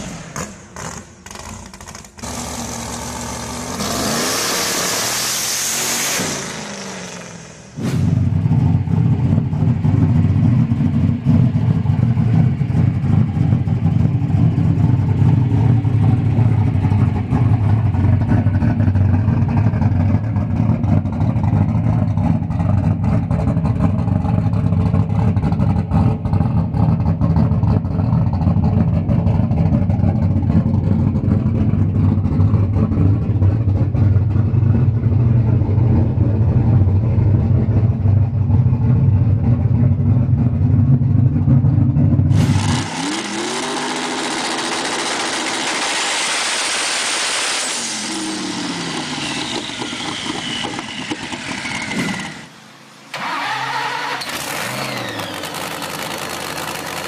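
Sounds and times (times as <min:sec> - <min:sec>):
car engine idling: 0:06.5 - 0:42.6, 0:55.0 - 0:57.0.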